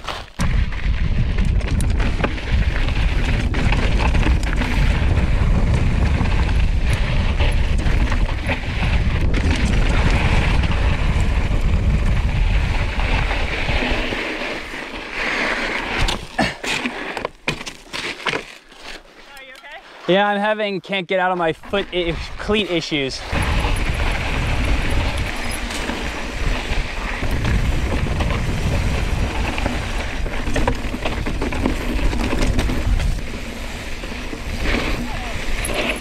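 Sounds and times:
bike tyres crunching on gravel: 0:00.0 - 0:20.5, 0:21.4 - 0:36.0
wind on microphone: 0:00.4 - 0:14.2, 0:22.0 - 0:36.0.

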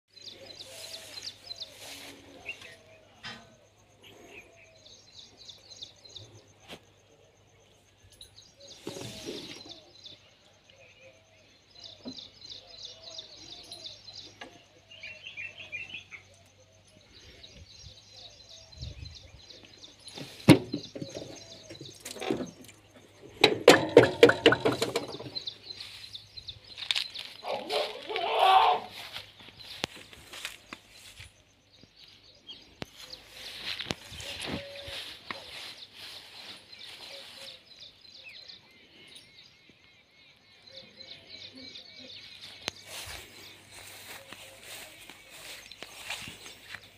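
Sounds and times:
birds chirping: 0:00.1 - 0:46.9
dense rattling clatter: 0:23.3 - 0:25.5.

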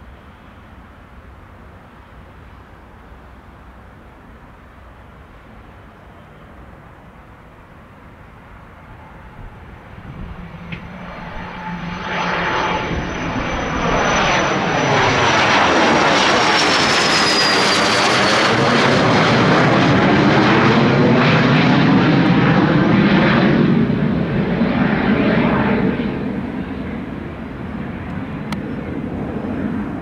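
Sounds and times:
jet passing overhead: 0:06.5 - 0:30.0
high jet whine: 0:06.8 - 0:30.0.

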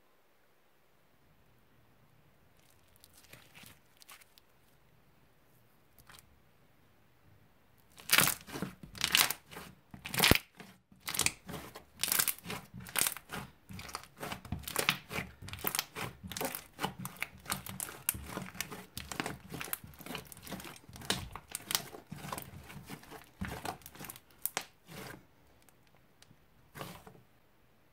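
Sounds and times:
slime crackling and popping: 0:07.9 - 0:25.1.

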